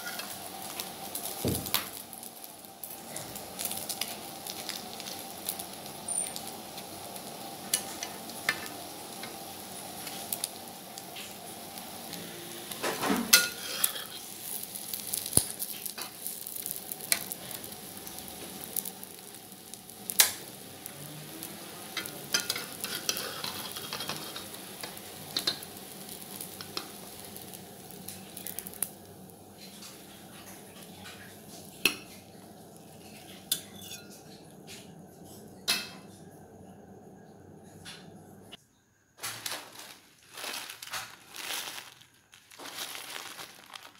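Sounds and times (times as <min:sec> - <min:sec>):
metal spatula scraping a pan: 0:00.0 - 0:00.4, 0:12.8 - 0:14.3, 0:22.0 - 0:24.8, 0:32.9 - 0:34.4
egg sizzling in oil: 0:00.0 - 0:34.9.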